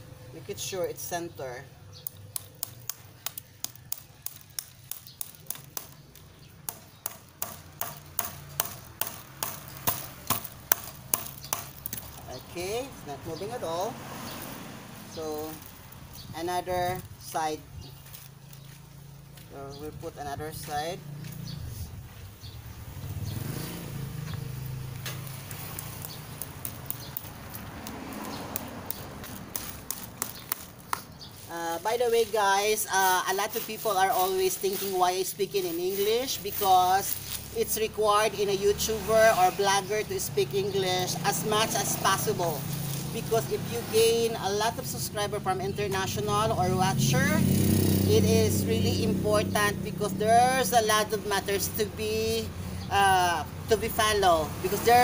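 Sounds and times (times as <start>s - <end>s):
hammer tapping a nail: 6.7s - 11.7s.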